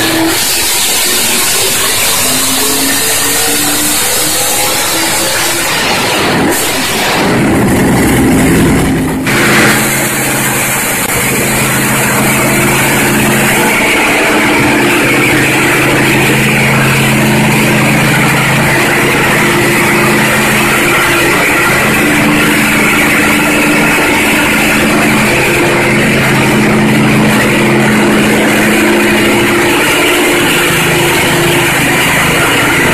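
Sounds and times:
engine revving up: 0.0s - 32.9s
racing engine running steady: 0.0s - 32.9s.

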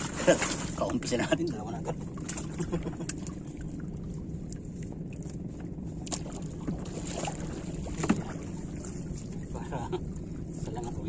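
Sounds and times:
boat motor running: 0.0s - 11.0s
sharp knocks on boat: 6.0s - 8.5s.

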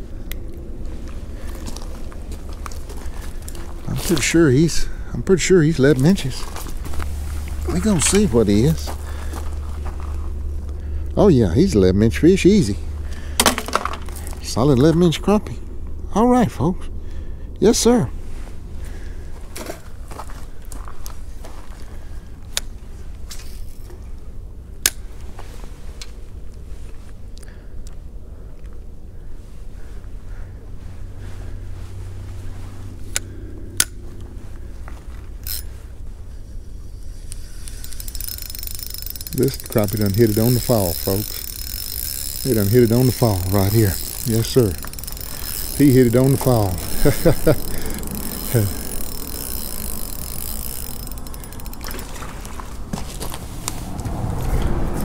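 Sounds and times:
low rumble: 0.0s - 21.6s, 46.7s - 55.0s
low hum: 0.0s - 55.0s
fishing reel clicks: 7.5s - 8.9s, 35.4s - 35.8s, 36.6s - 52.3s.

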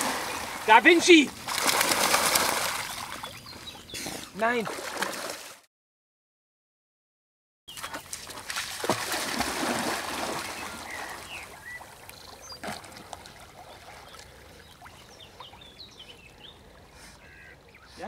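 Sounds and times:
dog splashing into water: 1.4s - 3.2s, 7.9s - 11.3s
dog paddling in water: 7.8s - 15.8s.

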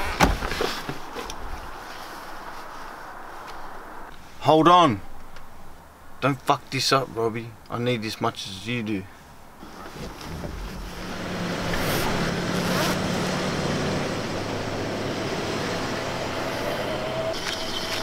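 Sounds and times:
road noise: 0.0s - 18.0s
van engine running: 9.6s - 18.0s.

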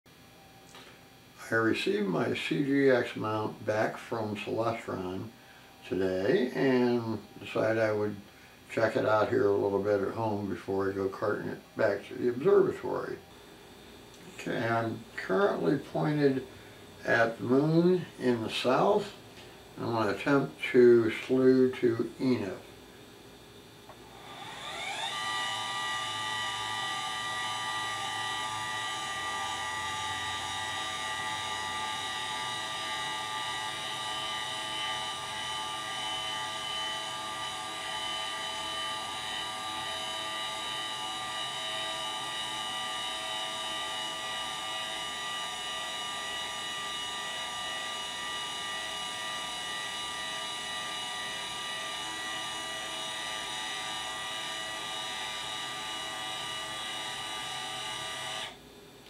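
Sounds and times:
motors whining: 23.9s - 58.6s.

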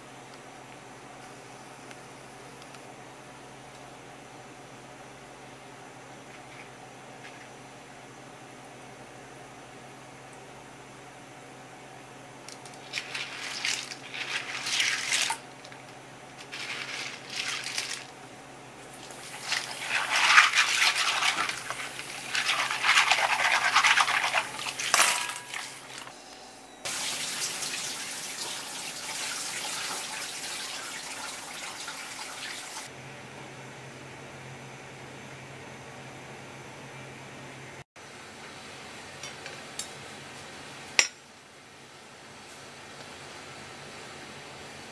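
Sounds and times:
running water rushing: 26.9s - 32.9s.

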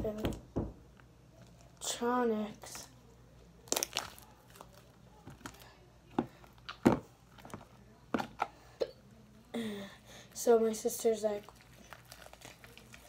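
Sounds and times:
slime popping and crackling: 3.6s - 5.7s, 11.4s - 13.0s.

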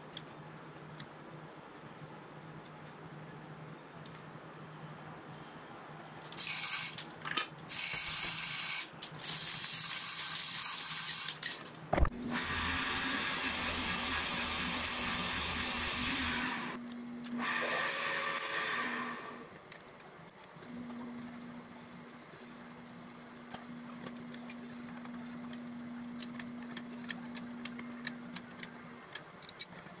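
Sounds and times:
short hissing bursts: 6.4s - 7.0s, 7.7s - 11.4s
milling machine drilling metal: 12.3s - 16.8s, 17.4s - 19.2s.

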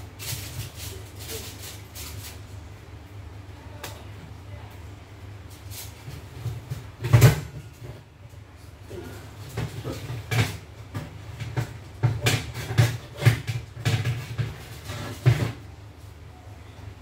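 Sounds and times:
kitchen items knocking and clattering: 6.0s - 8.1s, 8.9s - 15.6s.

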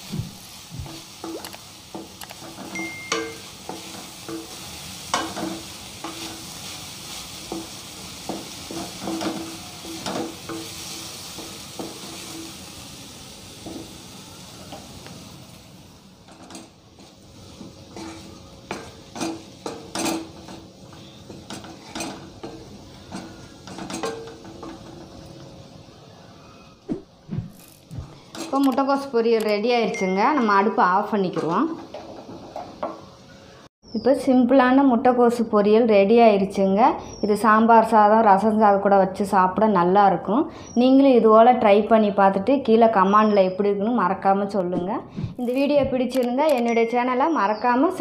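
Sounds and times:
food sizzling: 0.0s - 26.6s, 27.5s - 33.7s
spatula scraping metal pan: 16.3s - 25.3s.

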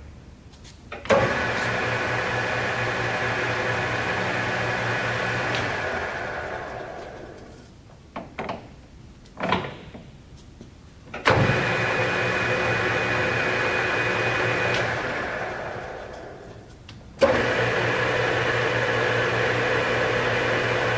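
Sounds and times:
lathe spindle running: 1.1s - 7.5s, 11.4s - 16.4s, 17.2s - 20.9s
lathe control clicks and clunks: 14.2s - 16.3s.

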